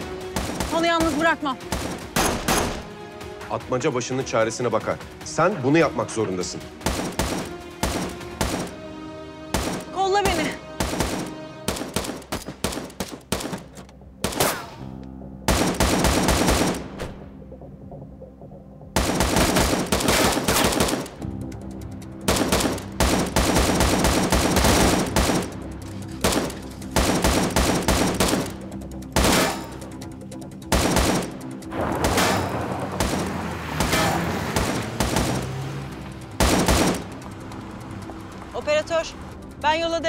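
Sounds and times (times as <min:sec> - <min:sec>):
tense background music: 0:00.0 - 0:40.0
rifle gunfire bursts: 0:06.8 - 0:08.8, 0:10.8 - 0:14.6, 0:15.5 - 0:16.9, 0:19.0 - 0:21.2, 0:22.3 - 0:25.6, 0:26.2 - 0:28.6, 0:30.7 - 0:33.3, 0:36.4 - 0:37.1.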